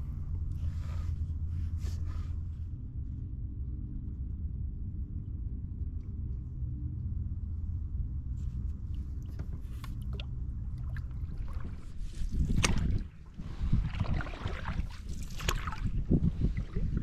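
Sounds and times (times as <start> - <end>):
low rumble: 0.0 - 17.0
paddle splashing water: 8.9 - 17.0.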